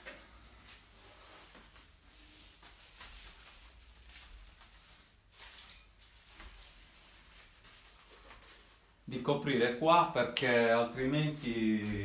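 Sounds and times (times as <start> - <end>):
faint rustling of cloth: 0.2 - 9.1.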